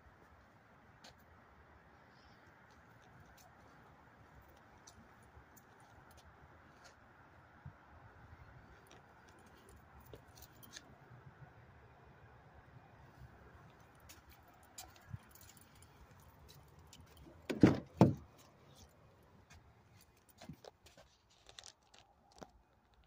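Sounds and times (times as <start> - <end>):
car door latch clunks: 17.5 - 18.2.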